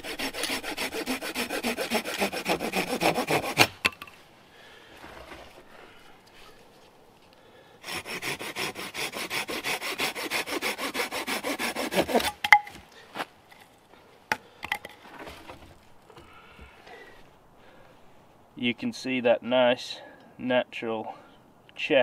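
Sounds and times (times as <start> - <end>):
saw cutting wood: 0.0 - 3.8, 7.8 - 12.4.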